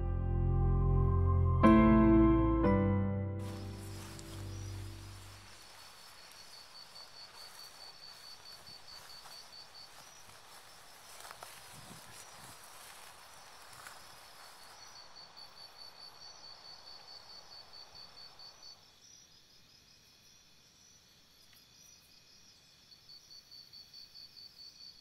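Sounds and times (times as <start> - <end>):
insect chirping: 3.4 - 25.0.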